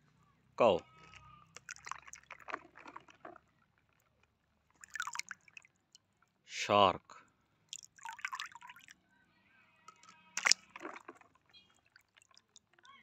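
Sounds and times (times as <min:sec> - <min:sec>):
water dripping and sloshing in tub: 0:01.0 - 0:06.4, 0:07.7 - 0:08.9, 0:09.9 - 0:13.0.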